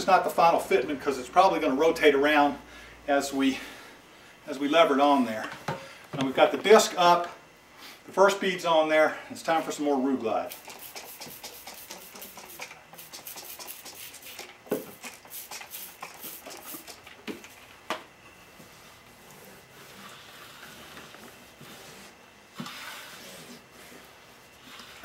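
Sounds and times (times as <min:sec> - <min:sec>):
spray bottle squirting: 0:10.5 - 0:17.2.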